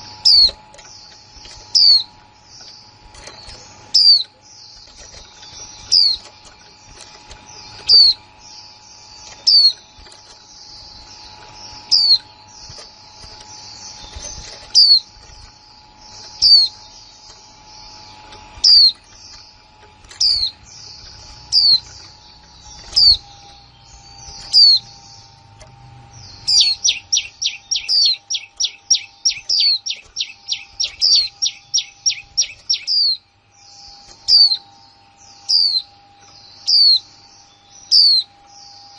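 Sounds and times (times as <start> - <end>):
thin bird twittering: 0.0 - 38.9.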